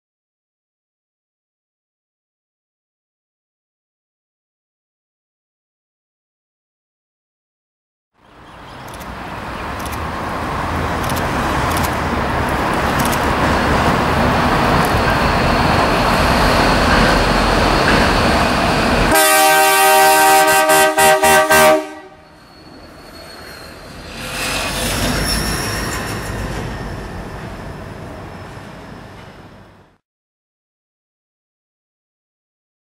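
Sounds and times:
diesel locomotive engine and wheels: 8.2 - 30.0
locomotive horn chord and toots: 19.1 - 22.4.

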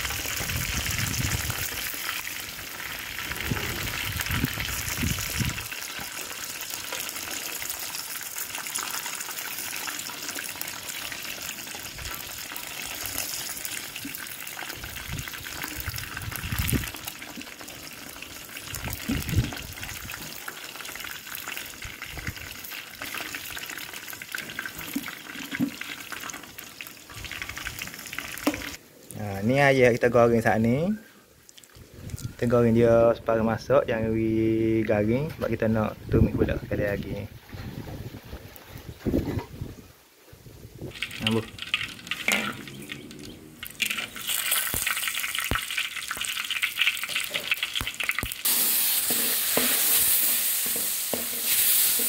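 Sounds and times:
chicken deep-frying in oil: 0.0 - 33.0, 40.6 - 52.0
metal spatula scraping wok: 48.4 - 52.0.

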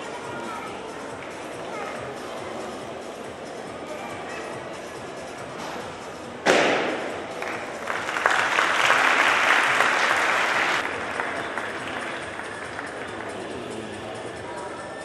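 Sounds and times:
audience applause: 7.4 - 13.4.

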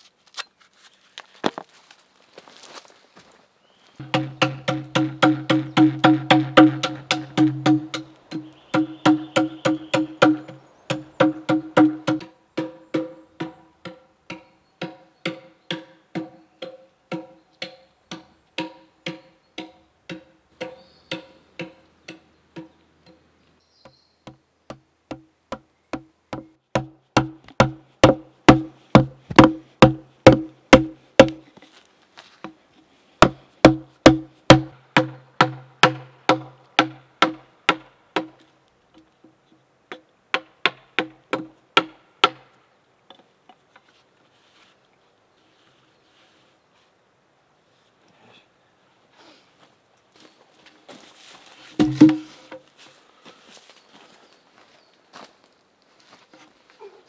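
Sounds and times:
mallet striking a gouge: 4.0 - 22.8, 24.3 - 31.4, 33.2 - 38.4, 51.8 - 52.6.

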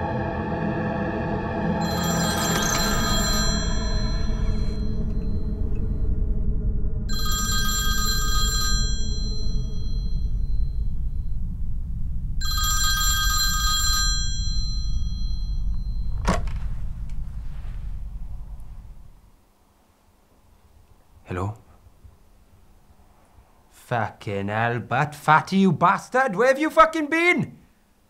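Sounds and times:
telephone ringing: 1.8 - 6.0, 7.1 - 11.0, 12.4 - 16.5
low steady rumble: 1.9 - 23.8.

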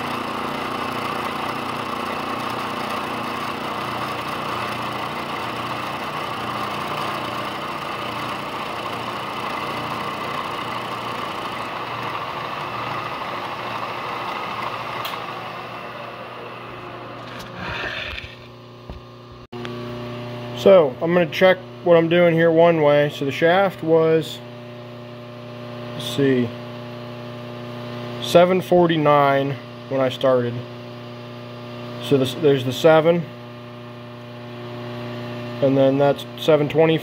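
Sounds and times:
milling machine cutting metal: 0.0 - 18.3.

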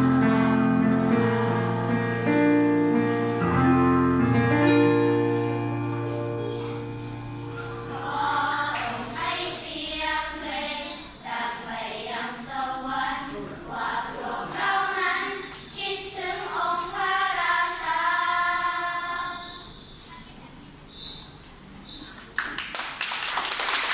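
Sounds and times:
held keyboard notes: 0.0 - 9.9
children's choir singing: 0.0 - 20.1.

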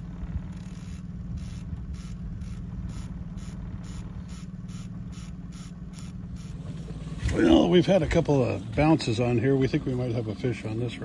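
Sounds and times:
even mechanical clicking: 0.0 - 6.9
boat motor running: 0.0 - 11.0.

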